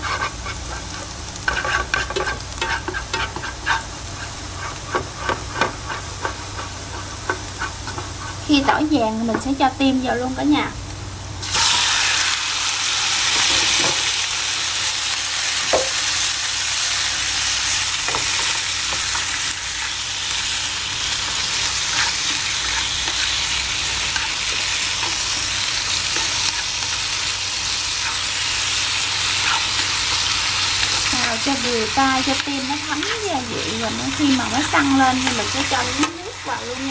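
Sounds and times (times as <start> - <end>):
wooden spatula scraping pan: 0.0 - 9.5, 21.2 - 27.2
meat sizzling in hot oil: 0.0 - 10.6, 11.4 - 36.9.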